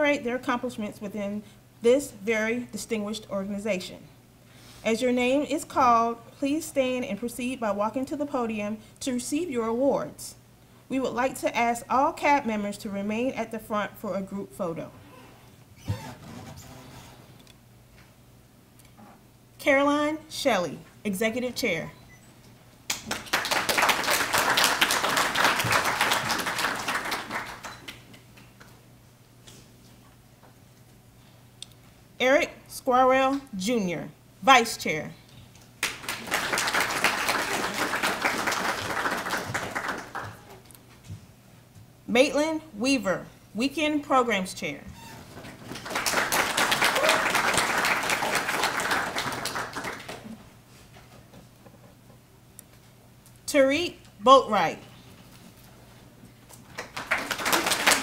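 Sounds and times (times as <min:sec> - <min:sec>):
audience applauding: 0:22.9 - 0:28.1, 0:35.8 - 0:40.5, 0:45.6 - 0:50.4, 0:56.8 - 0:58.0.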